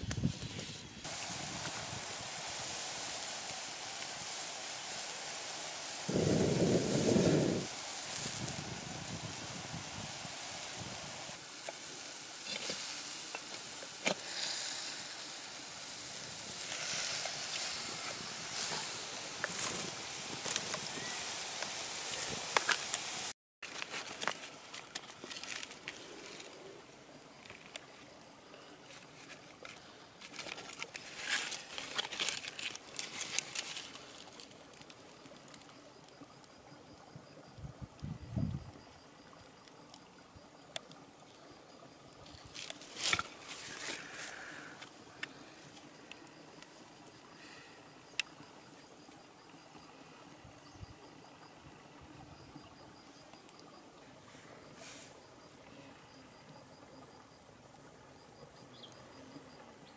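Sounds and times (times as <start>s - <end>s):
pot boiling and sizzling: 0.0s - 59.9s
leaves crinkling against clay pot: 29.0s - 34.8s.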